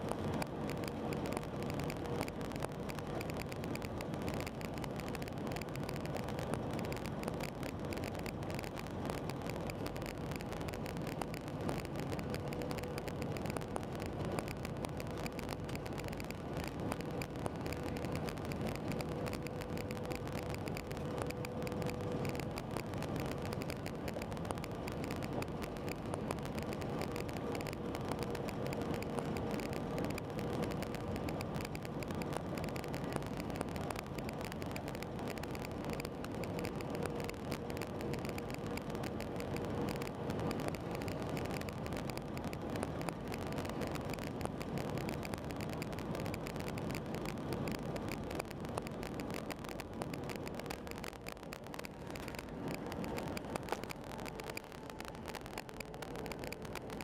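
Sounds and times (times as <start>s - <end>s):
aircraft cabin engine drone: 0.0s - 42.1s, 51.8s - 57.0s
faint steady whine: 0.0s - 57.0s.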